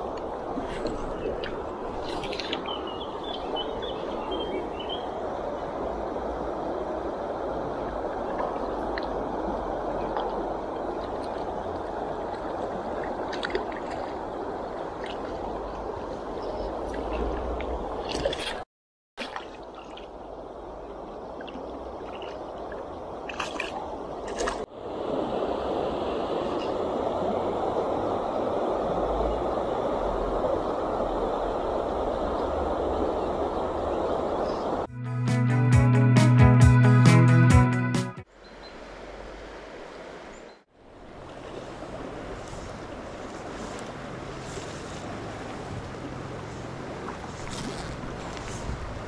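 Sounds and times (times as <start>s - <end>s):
river current running: 0.0s - 18.6s, 19.2s - 34.9s, 38.2s - 49.0s
moving water: 0.0s - 34.9s, 38.2s - 49.0s
wind buffeting microphone: 41.1s - 49.0s.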